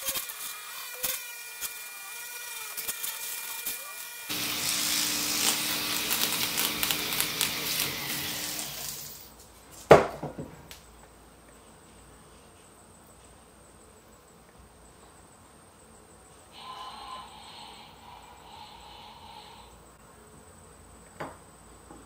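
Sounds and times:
rotary tool whirring on spoon: 0.0s - 9.1s
faint hiss: 10.6s - 21.8s.

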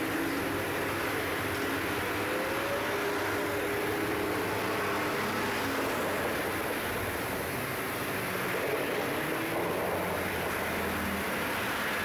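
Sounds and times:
distant city background noise: 0.0s - 12.0s
faint engine drone: 0.0s - 12.0s.

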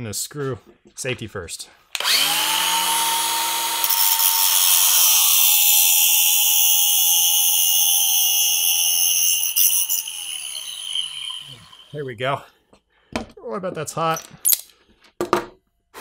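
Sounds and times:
grinder motor whine: 2.0s - 12.0s
angle grinder grinding metal: 2.0s - 12.1s.

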